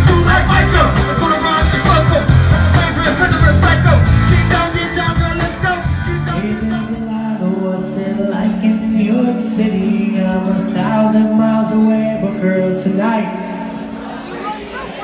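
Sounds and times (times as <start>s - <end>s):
live band with drums and singing: 0.0s - 13.1s
band playing held chords: 0.0s - 15.0s.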